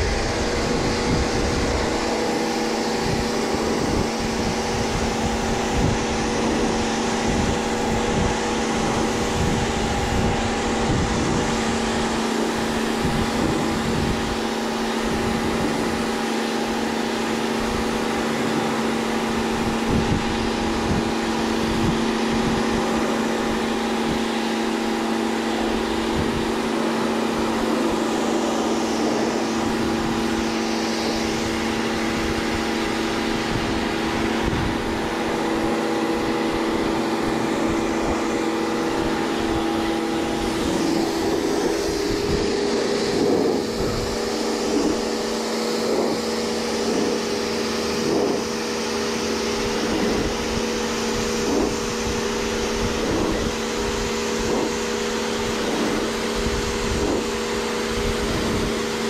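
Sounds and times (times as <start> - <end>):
spray washer motor hum: 0.0 - 59.0
water jet hissing: 0.0 - 59.0.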